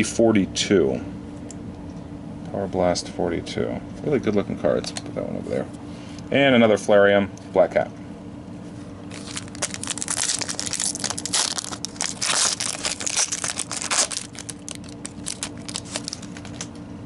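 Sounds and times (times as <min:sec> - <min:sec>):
foil wrapper tearing and crinkling: 0:09.1 - 0:16.8.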